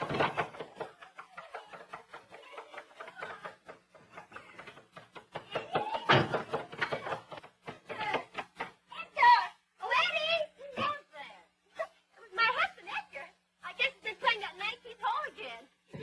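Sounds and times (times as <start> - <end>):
hamper knock: 0.0 - 8.9.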